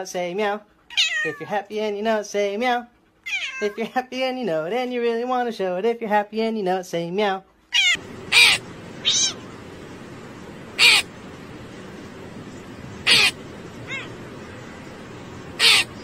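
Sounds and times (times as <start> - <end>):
steady background hiss: 7.8 - 16.0
crow cawing: 7.9 - 9.4, 10.7 - 11.2, 13.0 - 14.7, 15.6 - 16.0.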